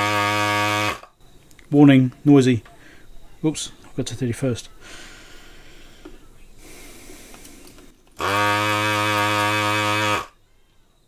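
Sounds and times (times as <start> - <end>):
vacuum pump buzzing hum: 0.0 - 1.4, 8.2 - 10.4.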